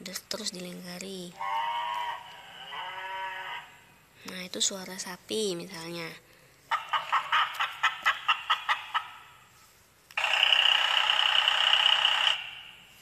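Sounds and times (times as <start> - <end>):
recorded hen clucking: 6.7 - 9.3.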